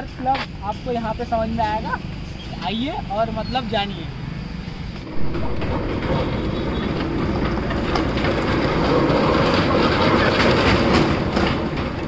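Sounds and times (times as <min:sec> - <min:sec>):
steel wheel rumbling rattle: 0:05.0 - 0:12.0.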